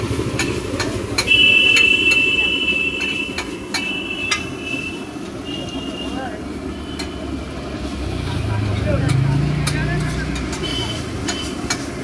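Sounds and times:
metal spatula clanging on griddle: 9.1s - 11.9s.

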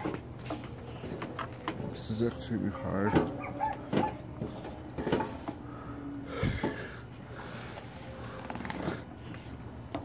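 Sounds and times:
man straining and breathing hard: 4.3s - 9.6s.

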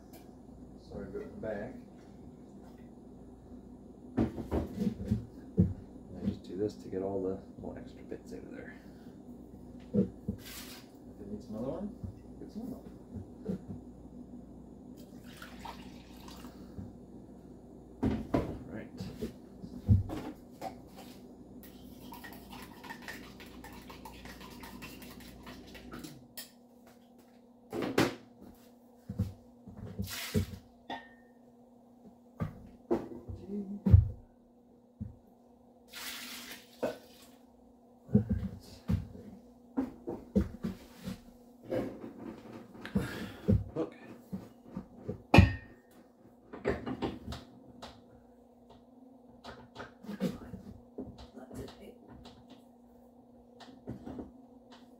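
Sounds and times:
steady low hum: 0.0s - 15.2s, 16.0s - 22.4s
short hiss: 30.1s - 30.5s.

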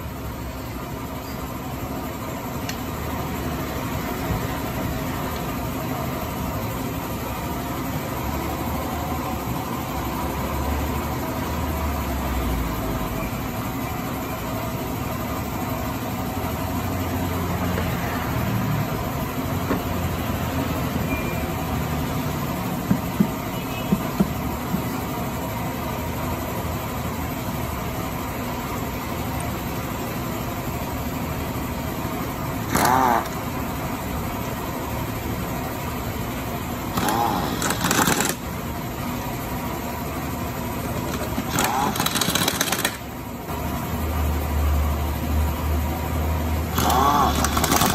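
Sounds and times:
mechanical rumble and hum: 0.0s - 47.9s
sharp metallic clicks: 36.9s - 38.5s, 40.9s - 43.1s, 46.7s - 47.9s.

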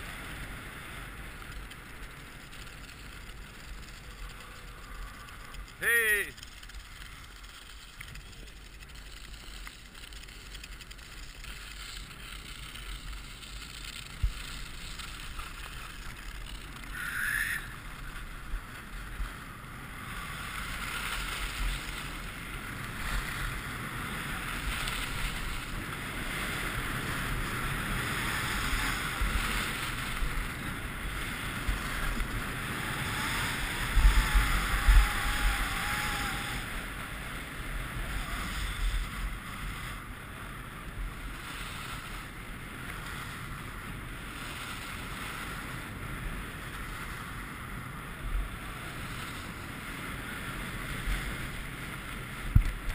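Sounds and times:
skis scraping over snow: 0.0s - 52.9s
wind buffeting microphone: 16.9s - 52.9s.

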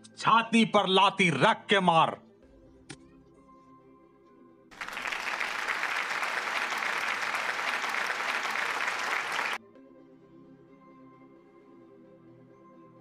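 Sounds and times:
faint background music: 0.0s - 5.4s, 9.6s - 13.0s
crowd clapping: 4.7s - 9.6s.

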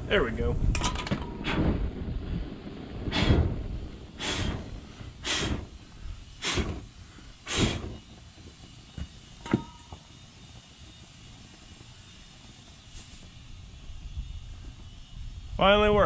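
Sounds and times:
fire puffing whooshes: 0.3s - 8.7s, 12.7s - 15.6s.

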